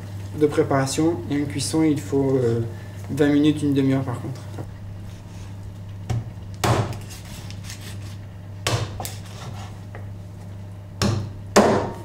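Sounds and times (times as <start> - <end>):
steady low hum: 0.0 - 12.0
knife chopping on wooden board: 6.1 - 7.1, 8.6 - 9.6, 11.0 - 12.0.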